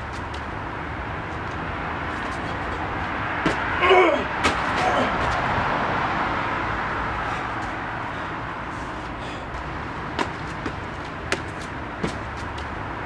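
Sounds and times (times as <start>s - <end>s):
traffic hum: 0.0s - 13.0s
person crying out: 3.8s - 5.2s.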